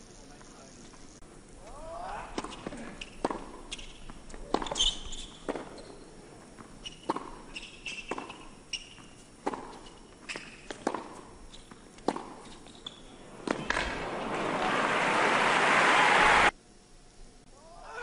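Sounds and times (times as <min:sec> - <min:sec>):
racket hitting ball: 0:02.4 - 0:05.8, 0:06.9 - 0:14.7
ball bouncing: 0:02.4 - 0:05.9, 0:07.0 - 0:07.4, 0:08.1 - 0:14.4
shoe squeaks: 0:03.0 - 0:06.1, 0:06.8 - 0:10.9, 0:11.5 - 0:11.8, 0:12.4 - 0:13.8.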